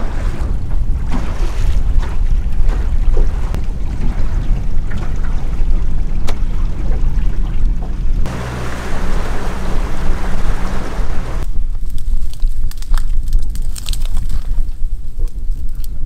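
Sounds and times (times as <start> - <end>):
motorboat engine running: 0.0 - 11.4
wind rumble on microphone: 0.0 - 16.0.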